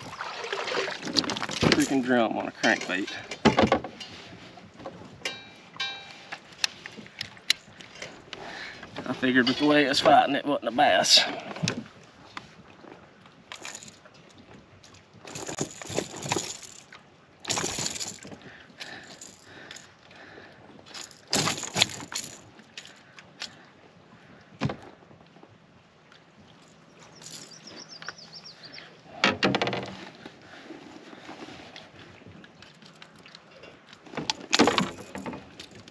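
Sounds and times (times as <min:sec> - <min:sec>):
quick rattle: 0:17.5 - 0:18.3.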